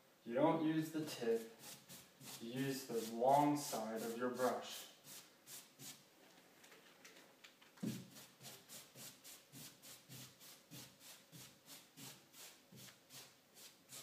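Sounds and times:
paintbrush swishing on wall: 0:01.0 - 0:06.0, 0:07.8 - 0:14.0.

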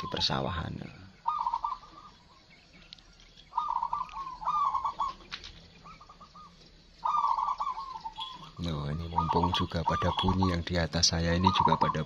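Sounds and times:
doves cooing: 0:00.0 - 0:12.0
high thin bird chirps: 0:00.0 - 0:12.0.

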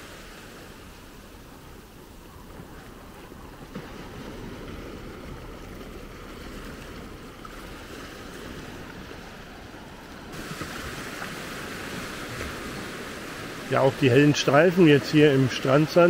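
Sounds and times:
small waves washing on sand: 0:00.0 - 0:16.0.

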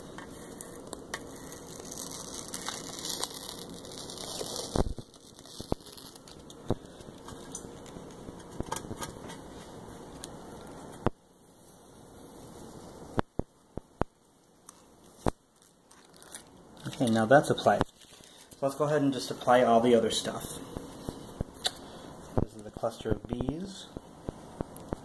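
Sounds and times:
transfer paper peeling off decal: 0:00.2 - 0:09.7, 0:14.7 - 0:18.6
paper crinkles and light ticks: 0:00.2 - 0:11.1, 0:14.6 - 0:18.7.

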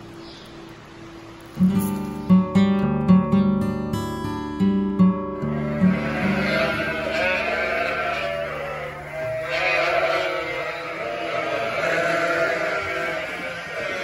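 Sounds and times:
lambs bleating: 0:05.4 - 0:14.0.

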